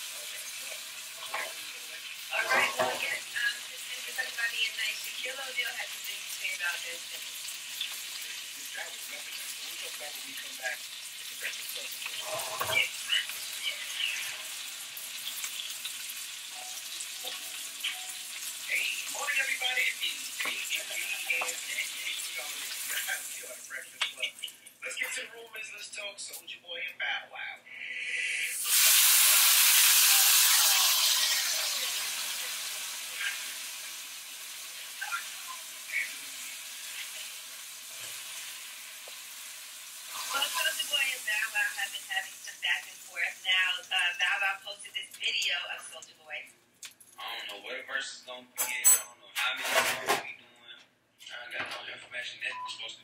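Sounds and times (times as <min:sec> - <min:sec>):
steak sizzling in skillet: 0:00.0 - 0:24.6, 0:28.5 - 0:44.6.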